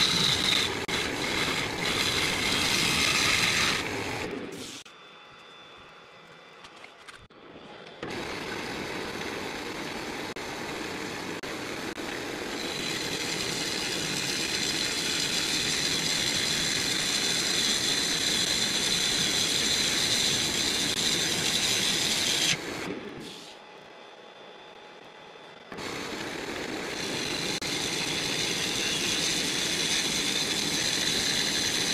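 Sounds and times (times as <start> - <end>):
wood lathe cutting: 0.0 - 4.4, 11.4 - 22.9, 25.7 - 31.9
high scraping whine: 0.0 - 6.6.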